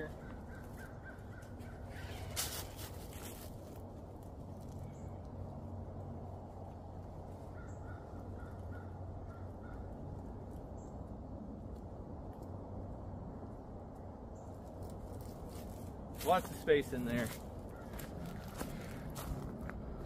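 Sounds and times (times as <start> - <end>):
short bird calls: 0.0 - 2.9
low outdoor rumble: 0.0 - 20.0.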